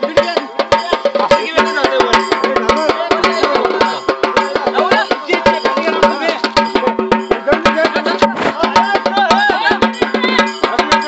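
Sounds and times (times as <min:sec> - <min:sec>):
procession drums beating fast: 0:00.0 - 0:11.0
people shouting: 0:02.7 - 0:11.0.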